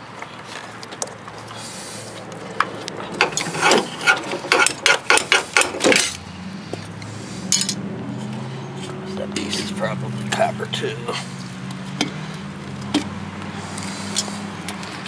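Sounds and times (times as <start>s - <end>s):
sharp metallic clicks and knocks: 2.6s - 6.8s.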